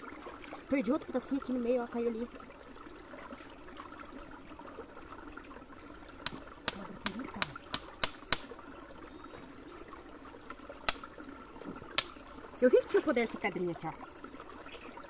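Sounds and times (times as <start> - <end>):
stream trickling over rocks: 0.0 - 15.0
stones knocking together: 6.3 - 8.5.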